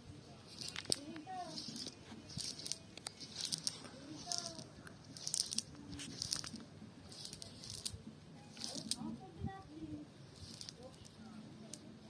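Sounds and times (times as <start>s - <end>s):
net rustling and crunching: 0.5s - 6.6s.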